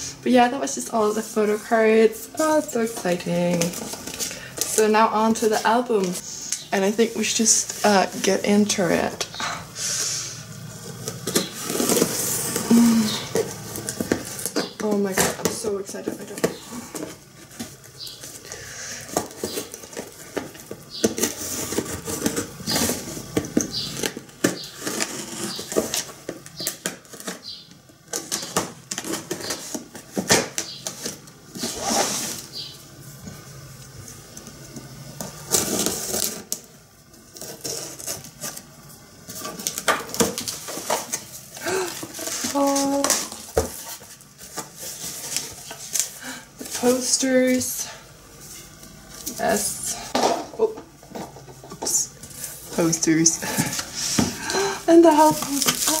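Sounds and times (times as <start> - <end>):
packing tape scraping: 0.9 - 47.8, 52.2 - 56.0
tape ripping: 10.8 - 15.5, 19.1 - 32.7, 34.8 - 47.0, 53.4 - 56.0
cardboard flaps rustling: 52.2 - 56.0.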